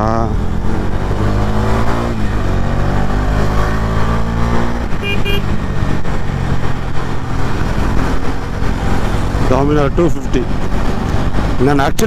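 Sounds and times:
motorcycle engine cruising: 0.0 - 12.0
vehicle horn beeps: 5.0 - 5.5.

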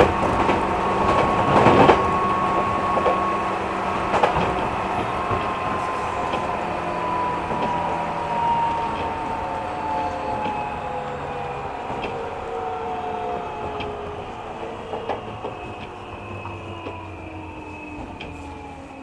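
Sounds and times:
rail-joint clicks: 0.0 - 18.7
train motor whine: 0.0 - 19.0
train running rumble: 0.0 - 19.0.

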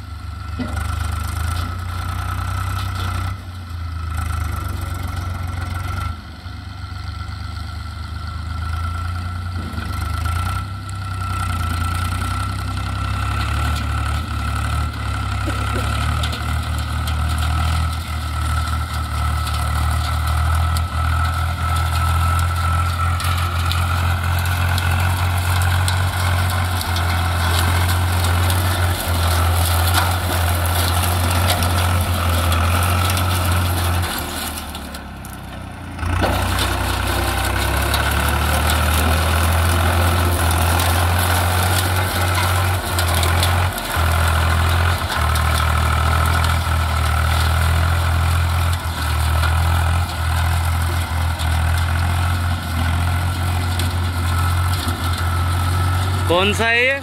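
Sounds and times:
tractor diesel engine running: 0.0 - 57.0.

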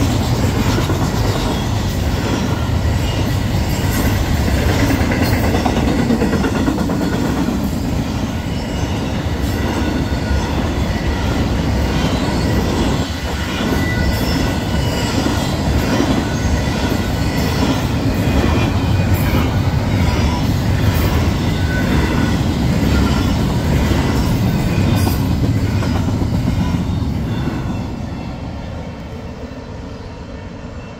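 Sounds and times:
freight train wheels rumbling on rails: 0.0 - 30.9.

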